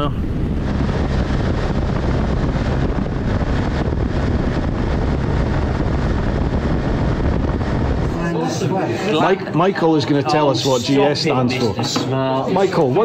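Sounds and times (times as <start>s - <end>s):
motorcycle engine drone: 0.0s - 9.9s
wind noise on microphone: 0.0s - 10.8s.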